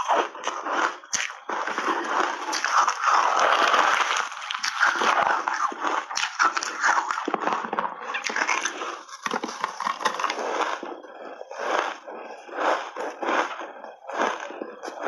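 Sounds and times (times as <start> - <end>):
crunching ice chunks: 0.0 - 10.9.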